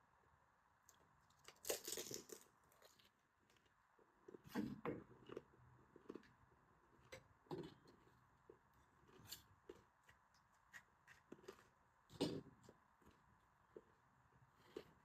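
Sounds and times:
crisp shells crackling: 1.4s - 3.1s.

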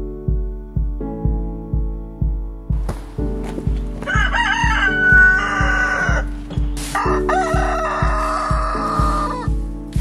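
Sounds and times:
music with steady beat: 0.0s - 10.0s
rooster crowing: 4.0s - 6.3s, 6.9s - 9.6s.

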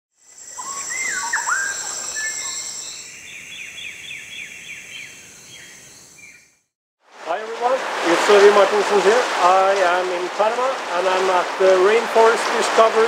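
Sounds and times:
high-pitched insect drone: 0.2s - 3.2s
birds calling: 0.5s - 6.5s.

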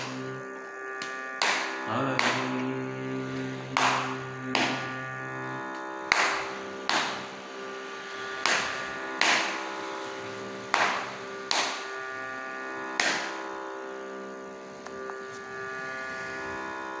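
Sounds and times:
steady drone: 0.0s - 17.0s
hand slaps: 1.0s - 2.4s, 3.8s - 4.8s, 6.1s - 7.2s, 8.4s - 9.6s, 10.8s - 11.8s, 13.0s - 13.3s.

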